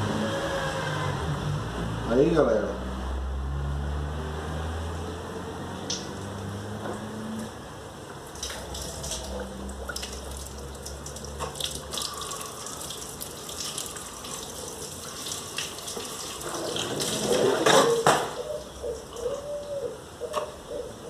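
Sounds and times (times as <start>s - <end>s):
liquid running and splashing: 8.1s - 18.4s.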